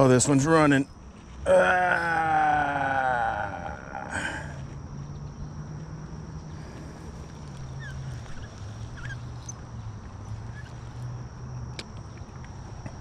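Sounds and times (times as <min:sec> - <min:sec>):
insect whine: 0:00.0 - 0:13.0
faint bird chirps: 0:07.4 - 0:09.6, 0:10.2 - 0:11.0.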